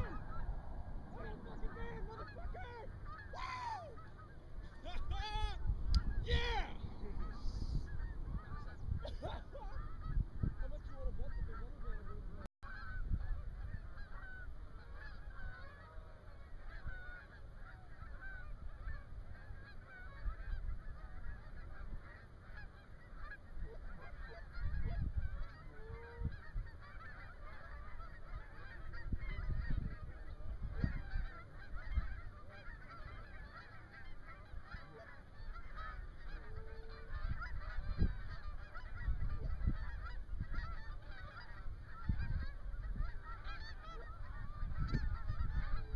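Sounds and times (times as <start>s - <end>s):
low rumble: 0.0s - 1.8s
geese honking: 0.0s - 45.9s.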